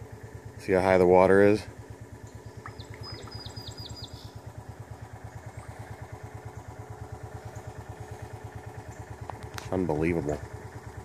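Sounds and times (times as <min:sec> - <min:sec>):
engine idling: 0:00.0 - 0:11.0
bird chirping: 0:02.2 - 0:04.5.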